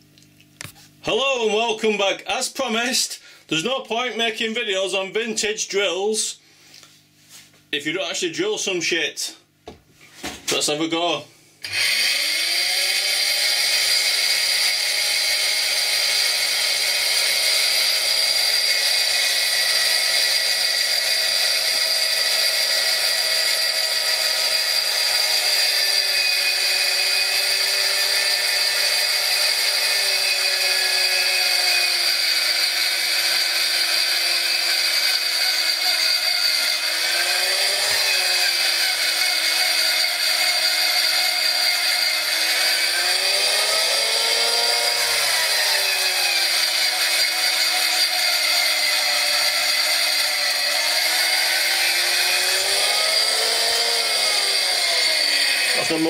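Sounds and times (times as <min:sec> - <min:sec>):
electric drill boring into wood: 0:11.6 - 0:56.0.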